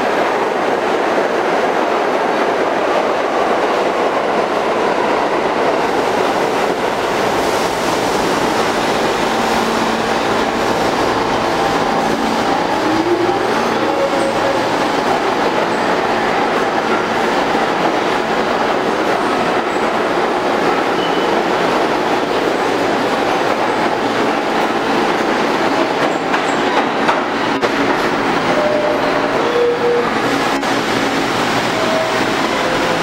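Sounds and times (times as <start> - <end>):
subway train rumbling past: 0.0 - 33.0.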